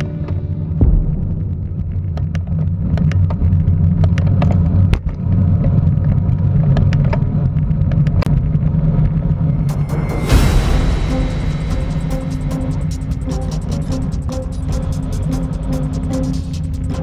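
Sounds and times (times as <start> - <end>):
wind rushing: 9.2 - 17.0.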